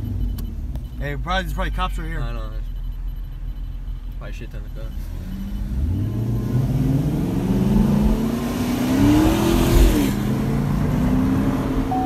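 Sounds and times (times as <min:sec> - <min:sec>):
car engine accelerating hard: 0:05.0 - 0:12.0.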